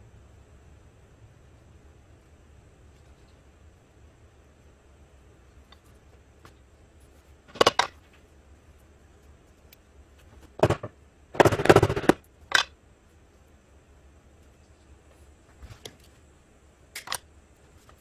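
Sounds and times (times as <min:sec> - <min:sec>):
tools knocking and clattering: 0:10.6 - 0:12.7.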